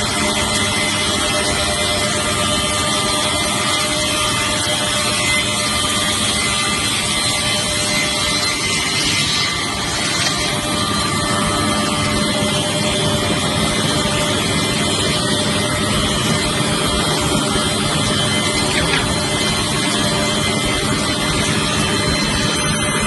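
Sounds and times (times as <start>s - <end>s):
rip saw cutting wood: 4.6s - 11.4s, 17.4s - 20.6s.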